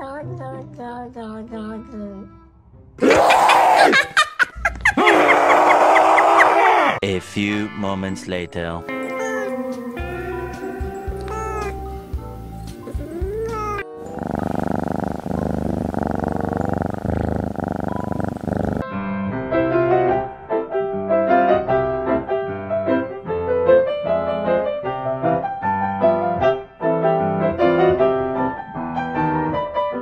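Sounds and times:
bouncy piano tune: 0:07.4 - 0:14.0
cat purring: 0:09.0 - 0:18.8.

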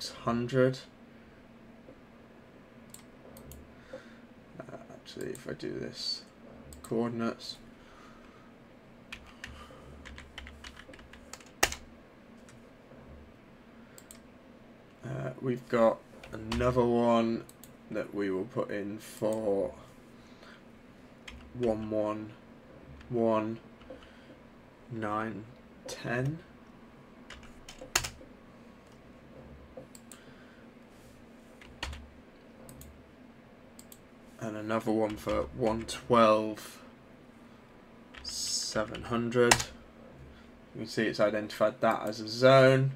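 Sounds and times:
computer keyboard typing: 0:09.1 - 0:11.8, 0:21.3 - 0:21.9, 0:27.3 - 0:28.2, 0:31.6 - 0:32.0.

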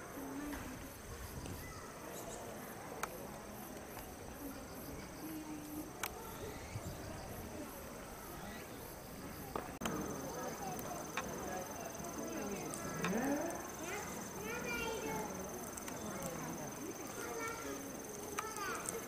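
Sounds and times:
crickets chirping: 0:00.0 - 0:19.0
faint background voices: 0:00.0 - 0:19.0.

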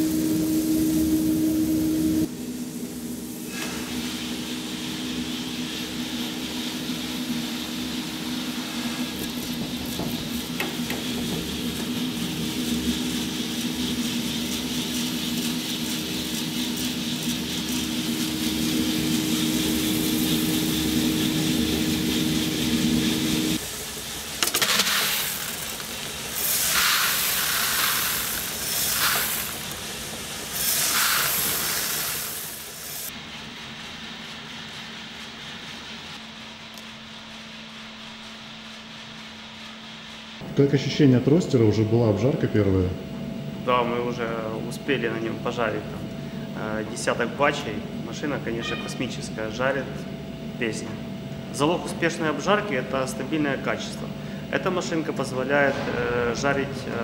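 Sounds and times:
coffee roaster motor and fan hum: 0:00.0 - 0:57.0
hissing rustling bursts: 0:02.2 - 0:40.4.

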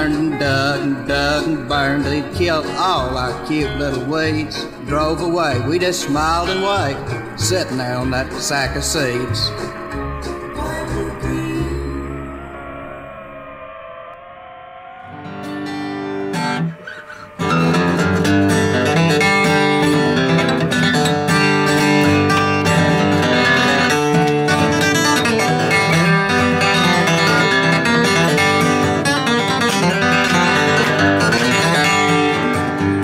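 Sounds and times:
acoustic guitar instrumental: 0:00.0 - 0:12.9, 0:15.0 - 0:33.0.

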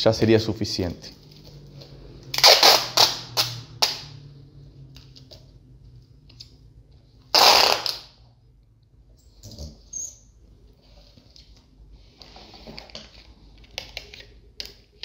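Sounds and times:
packing tape rasp: 0:02.3 - 0:04.0, 0:07.3 - 0:08.1.

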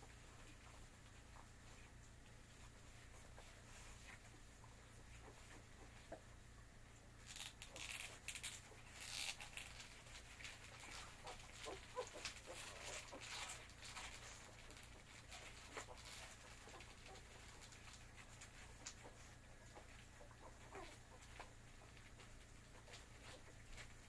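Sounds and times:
puppies suckling: 0:00.0 - 0:24.0
puppies squeaking: 0:07.3 - 0:22.2.

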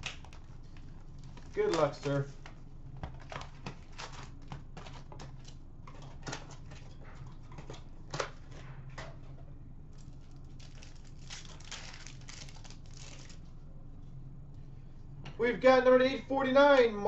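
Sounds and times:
cardboard and wrappers rustling: 0:00.0 - 0:08.7, 0:09.9 - 0:13.5
steady low hum: 0:00.0 - 0:17.0.

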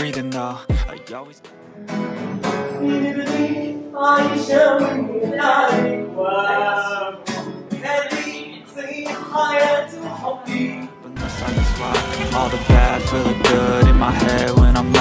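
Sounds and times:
hip hop song with sung vocals: 0:00.0 - 0:01.3, 0:07.9 - 0:15.0.

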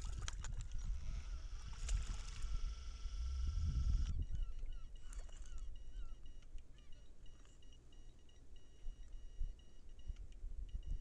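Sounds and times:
wind rumbling on microphone: 0:00.0 - 0:06.2, 0:08.9 - 0:11.0
distant birds calling: 0:00.0 - 0:11.0.

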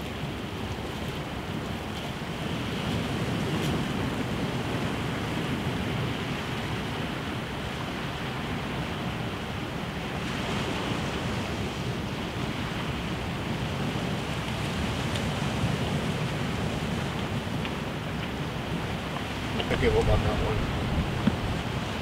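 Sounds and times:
sea surf on rocky shore: 0:00.0 - 0:22.0
wind on microphone: 0:18.7 - 0:22.0.

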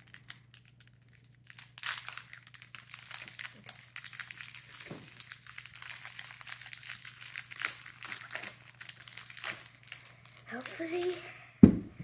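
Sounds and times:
foil wrapper crinkling: 0:00.0 - 0:11.2.

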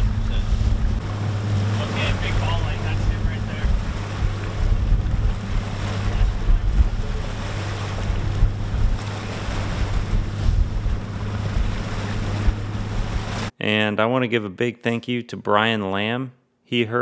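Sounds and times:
outboard motor humming: 0:00.0 - 0:13.5
waves splashing: 0:00.0 - 0:13.5
wind buffeting microphone: 0:00.0 - 0:13.5.

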